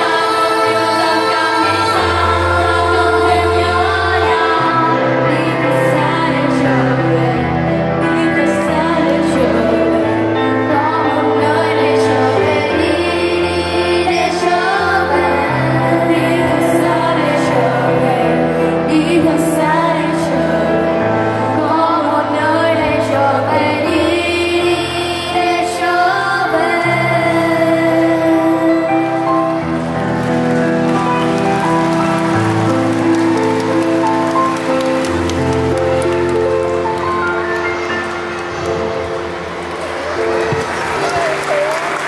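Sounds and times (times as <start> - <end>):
girls singing a pop ballad: 0.0 - 30.8
piano: 0.0 - 42.0.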